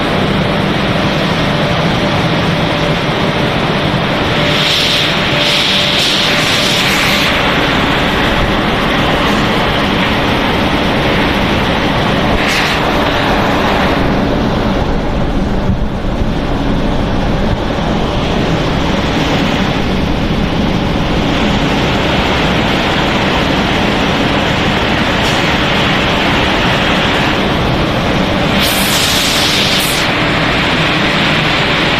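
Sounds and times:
machinery rumble and hiss: 0.0s - 31.9s
pellets pouring from chute: 4.3s - 10.3s.

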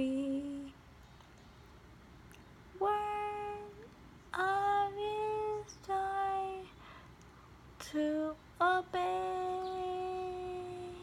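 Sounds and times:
person singing a hymn: 0.0s - 0.7s, 2.8s - 6.7s, 7.8s - 11.0s.

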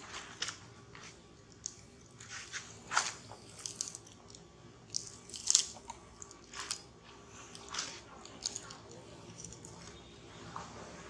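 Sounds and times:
crackling wrapper crunches: 2.9s - 9.8s
monkey chewing plastic-wrapped snack: 3.3s - 9.8s.

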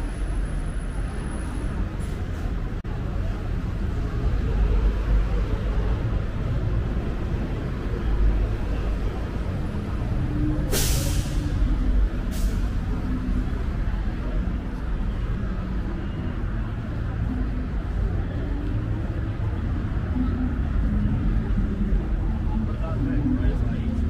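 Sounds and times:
city street traffic rumble: 0.0s - 24.0s
air brakes hissing: 10.6s - 12.9s.

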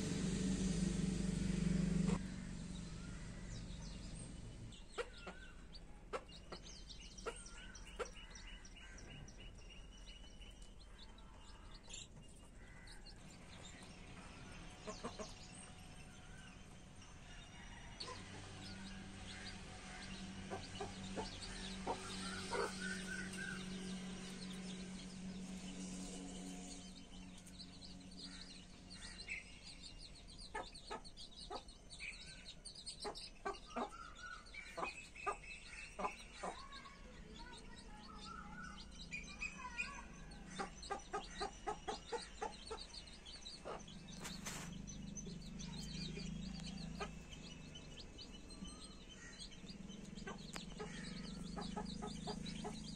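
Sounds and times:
chicks peeping: 0.0s - 52.9s
hen clucking: 4.9s - 8.2s, 17.6s - 23.8s, 33.0s - 36.8s, 39.6s - 44.8s, 45.4s - 47.8s, 48.6s - 52.9s.

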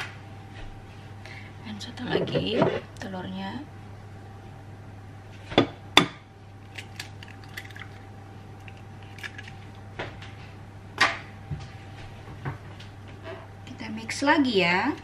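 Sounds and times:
eggshell clicks breaking: 6.7s - 8.0s.

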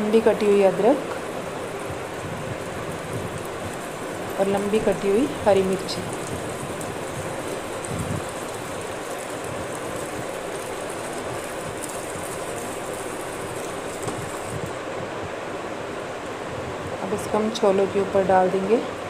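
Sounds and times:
butter sizzling in a pan: 0.0s - 14.8s
faint crackles: 0.0s - 14.8s.

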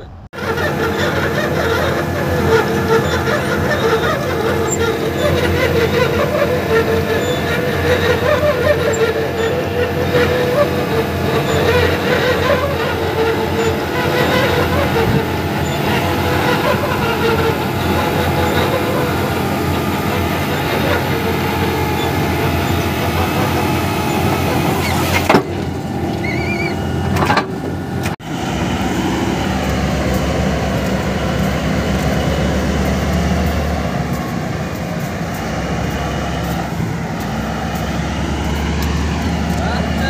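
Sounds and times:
drill rig machinery drone: 0.0s - 40.0s
dump truck diesel engine: 0.0s - 40.0s
faint engine whine: 0.0s - 40.0s.

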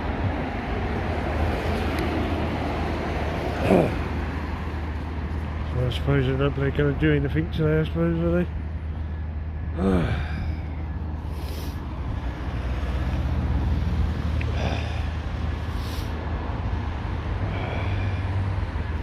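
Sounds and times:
steady low street rumble: 0.0s - 19.0s
person sighing: 9.7s - 10.8s, 14.5s - 15.2s.

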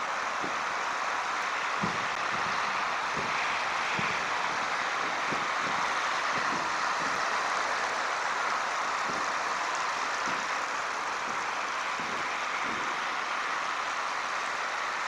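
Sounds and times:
steady rushing outdoor noise: 0.0s - 15.0s.

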